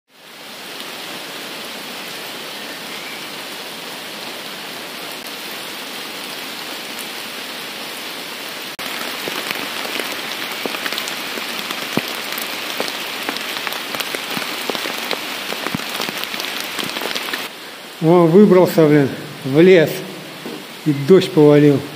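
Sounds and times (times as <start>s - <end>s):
rain pouring: 0.1s - 21.9s
raindrops pattering: 8.4s - 21.9s.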